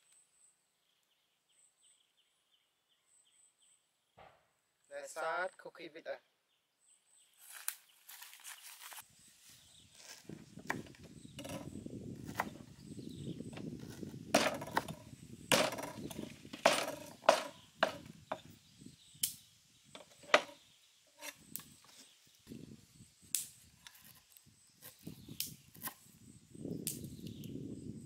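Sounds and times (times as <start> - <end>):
knife chopping on wooden board: 11.4 - 12.6, 13.8 - 18.4.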